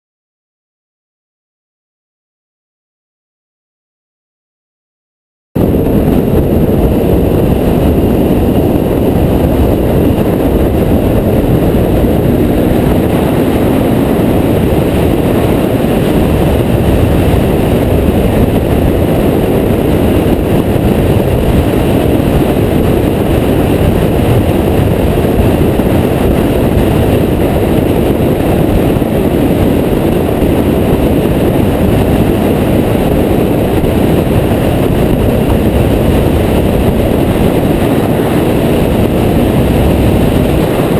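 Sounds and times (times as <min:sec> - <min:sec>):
motorcycle engine running: 0:05.6 - 0:40.9
wind and road noise: 0:05.6 - 0:40.9.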